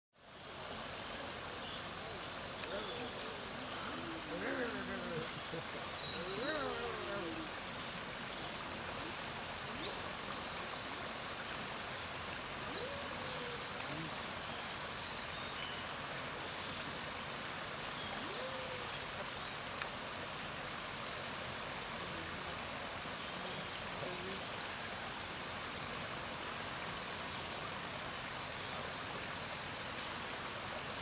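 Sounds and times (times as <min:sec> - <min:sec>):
faint indistinct voices: 0:01.0 - 0:07.6.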